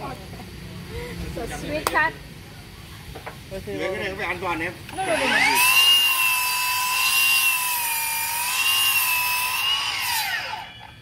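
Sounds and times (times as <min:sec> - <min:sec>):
miter saw cutting wood: 0:04.9 - 0:11.0.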